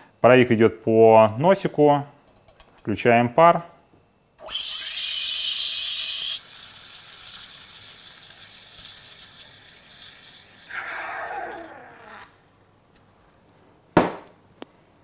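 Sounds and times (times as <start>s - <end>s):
steam wand hissing in milk: 4.4s - 11.0s.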